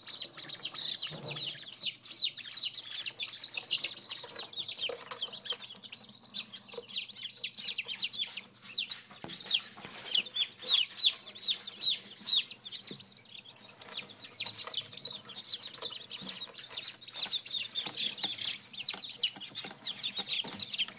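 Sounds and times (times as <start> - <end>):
baby chicks peeping: 0.0 - 20.9.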